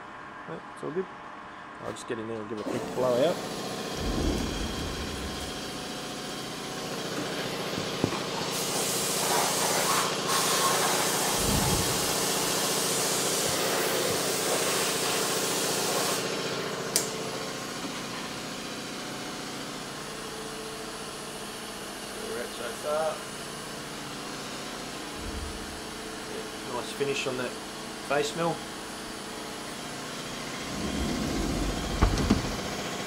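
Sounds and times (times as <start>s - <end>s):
mill humming: 3.4s - 8.6s, 25.1s - 26.5s, 30.4s - 33.0s
air blow gun hissing: 8.4s - 16.3s
sharp click: 16.9s - 17.1s.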